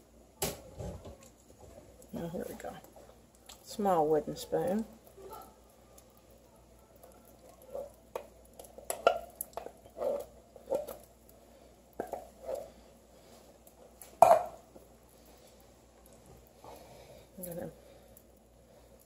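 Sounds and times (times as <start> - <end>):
spoon scraping tin can: 9.6 - 11.0.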